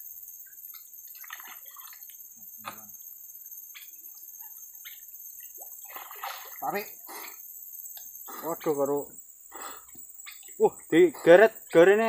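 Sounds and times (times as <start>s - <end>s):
steady high-pitched hiss: 0.0s - 12.0s
water dripping and splashing: 1.0s - 2.8s, 4.9s - 6.9s.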